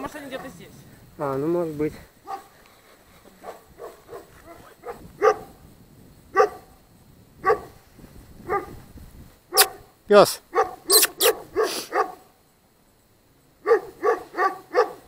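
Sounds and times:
dogs barking: 2.2s - 2.6s, 3.4s - 5.6s, 6.3s - 6.7s, 7.4s - 7.8s, 8.5s - 8.8s, 9.5s - 9.8s, 10.5s - 12.3s, 13.6s - 15.0s.

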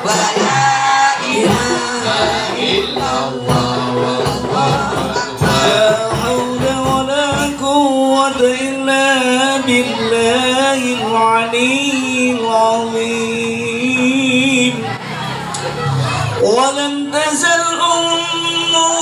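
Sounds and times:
drum strokes: 0.0s - 11.0s
devotional singing: 0.0s - 15.0s, 16.4s - 19.0s.

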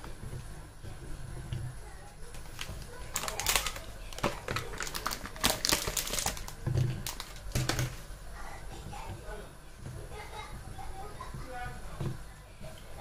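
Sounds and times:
plastic tray crinkling: 2.3s - 8.1s.

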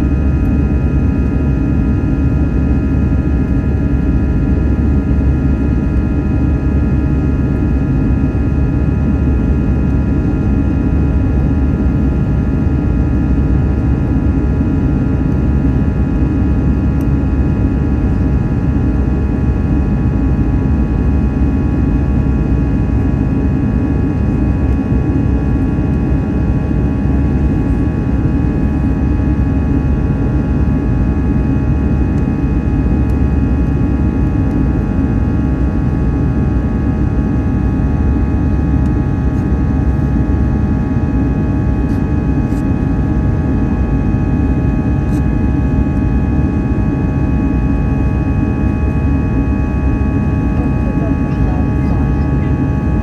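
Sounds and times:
jet engines running: 22.4s - 53.0s.

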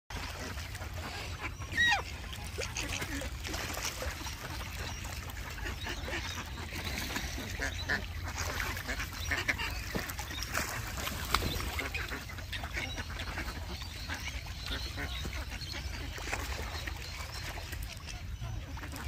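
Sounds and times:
ducks and parrots calling: 0.4s - 19.0s.

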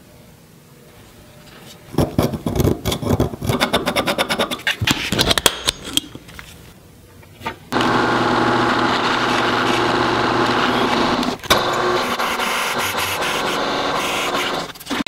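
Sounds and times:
drill press motor hum: 7.7s - 15.0s
drill bit cutting steel: 7.8s - 15.0s.

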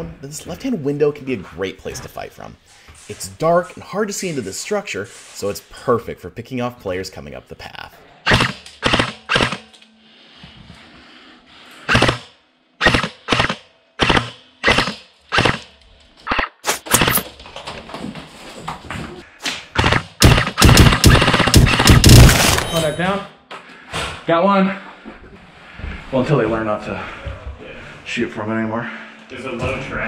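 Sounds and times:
airsoft rifle shots: 8.3s - 9.6s, 11.9s - 15.7s, 16.3s - 17.2s, 19.7s - 22.8s.

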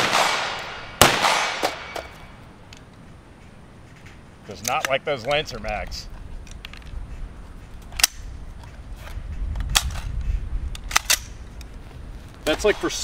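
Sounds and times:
rifle action clacking: 10.7s - 11.7s.

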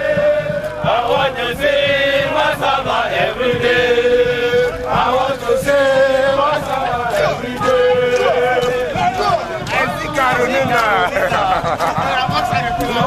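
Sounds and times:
group singing marching song: 0.0s - 13.0s.

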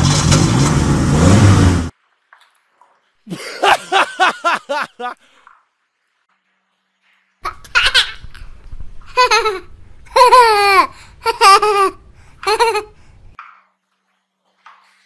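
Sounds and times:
child-like giggling: 3.3s - 5.2s, 9.1s - 13.0s.

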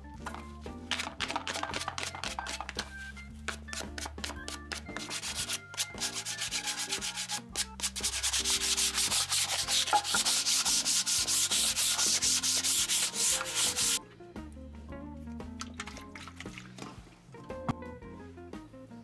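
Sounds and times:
background music: 0.0s - 19.0s
sandpaper rubbing by hand: 0.9s - 2.7s, 3.4s - 14.0s.

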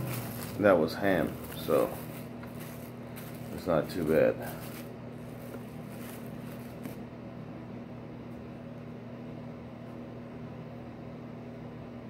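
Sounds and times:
plastic wrap crinkling: 0.0s - 7.0s
low mechanical hum: 0.0s - 12.0s.

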